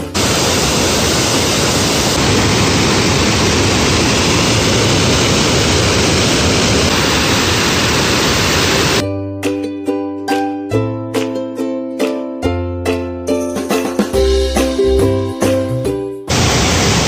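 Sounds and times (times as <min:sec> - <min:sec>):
waterfall and rapids rushing: 0:00.0 - 0:09.0, 0:16.3 - 0:17.0.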